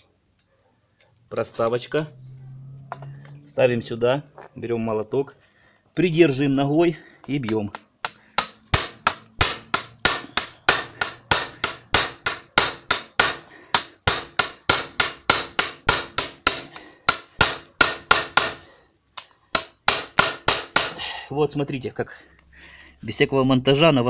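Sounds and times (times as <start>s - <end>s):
hammer striking metal: 7.7s - 18.6s, 19.5s - 21.0s.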